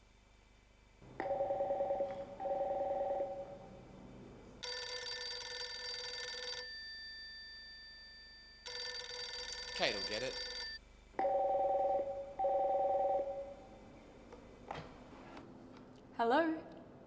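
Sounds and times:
mobile phone ringtone: 1.3s - 3.5s, 4.6s - 13.5s
desk phone two-tone trill: 4.6s - 7.3s, 8.6s - 10.8s.

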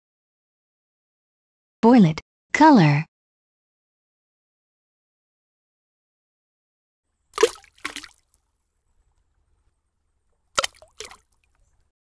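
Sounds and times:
cartoon wet splashes: 7.4s - 8.3s, 10.6s - 11.4s.

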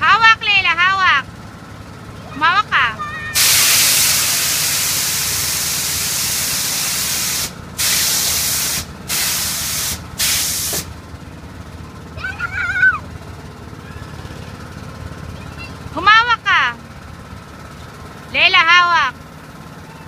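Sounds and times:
compressed air hissing: 3.4s - 11.0s.

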